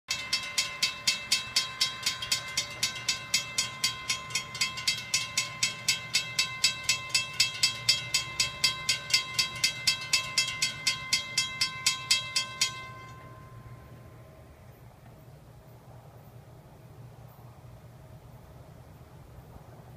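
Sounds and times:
railroad crossing bell ringing: 0.1 - 14.6.

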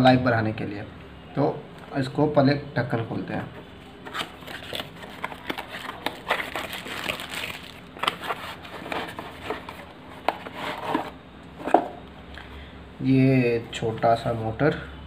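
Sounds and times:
cardboard flaps rustling: 4.0 - 11.9.

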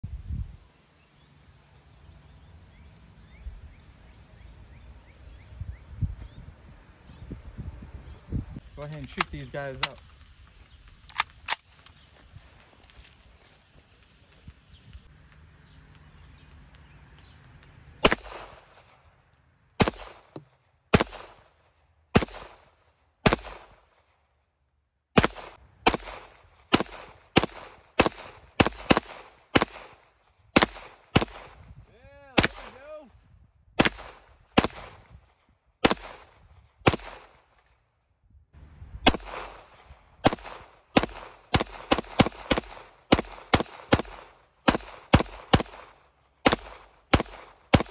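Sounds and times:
handgun shots with echo: 32.4 - 32.8.

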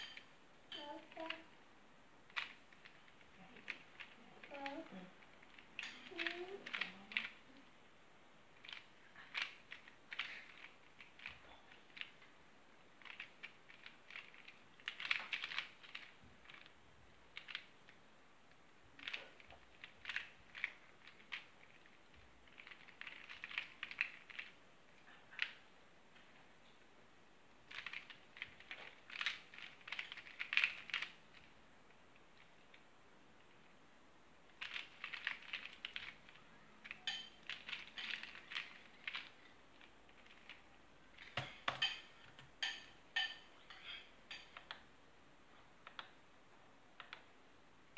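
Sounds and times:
plastic puzzle clicking: 2.3 - 7.4, 8.6 - 12.3, 13.0 - 18.0, 19.0 - 24.6, 27.7 - 31.5, 34.5 - 40.6.

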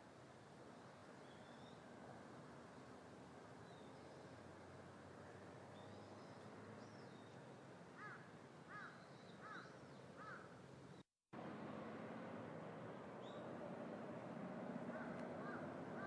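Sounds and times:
crow cawing: 8.0 - 10.5, 14.9 - 16.0.

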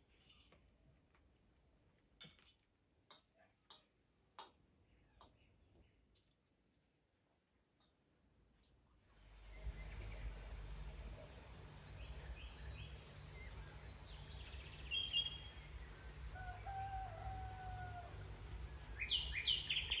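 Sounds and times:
low rumble: 9.2 - 14.4
small birds chirping: 9.4 - 16.7, 17.9 - 20.0
rooster crowing: 16.3 - 18.4.

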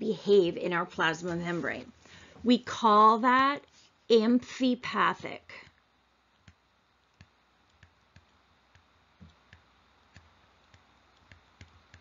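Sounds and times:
stylus tapping on tablet: 6.4 - 12.0.

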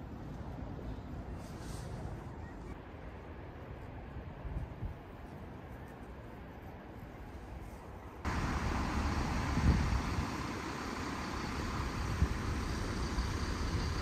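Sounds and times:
wind buffeting microphone: 8.3 - 14.0.

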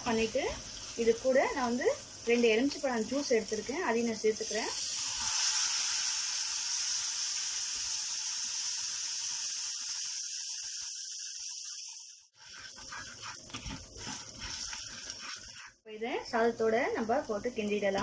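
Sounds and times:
sizzling while stirred: 0.0 - 18.0
steam hissing in hot oil: 4.4 - 13.3.

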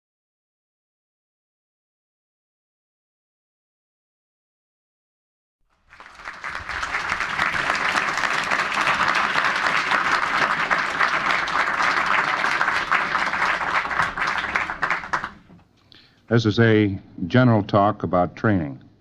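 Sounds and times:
audience applauding: 5.7 - 15.6.

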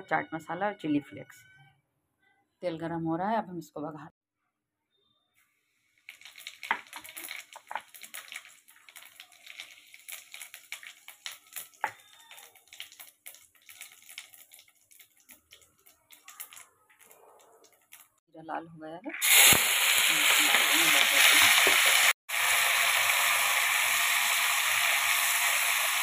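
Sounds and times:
seeds sizzling in hot oil: 5.6 - 18.2, 19.1 - 26.0.

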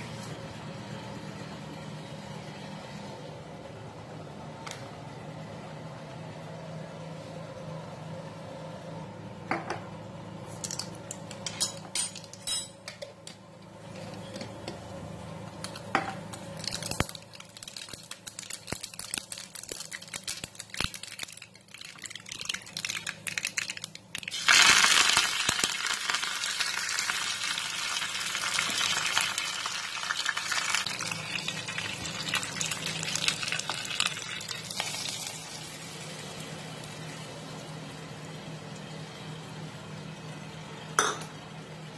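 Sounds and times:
loud sizzle in oil: 15.5 - 40.7
seeds popping in hot oil: 15.6 - 35.6.

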